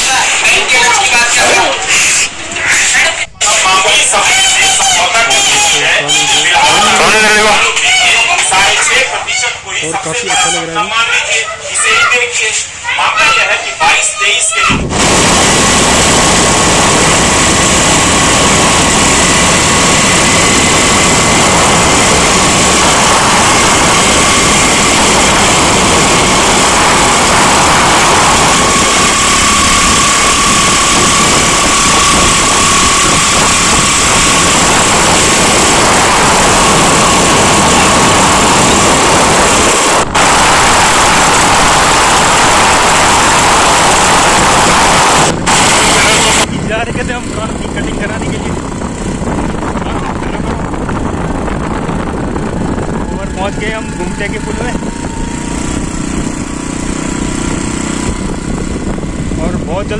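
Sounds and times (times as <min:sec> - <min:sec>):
steady whine: 0:00.0 - 0:59.9
vehicle engine and road noise: 0:16.0 - 0:59.9.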